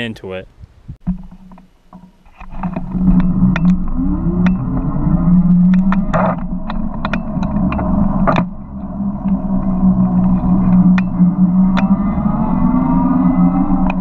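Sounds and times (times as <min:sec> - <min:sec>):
tyre and wind rumble: 0:00.0 - 0:14.0
sharp clicks and knocks: 0:01.0 - 0:12.0
electric motor hum: 0:02.4 - 0:14.0.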